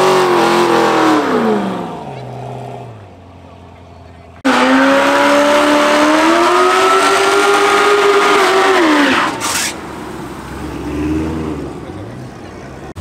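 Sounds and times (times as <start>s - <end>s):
car engine revving hard: 0.0s - 2.8s, 4.4s - 9.8s.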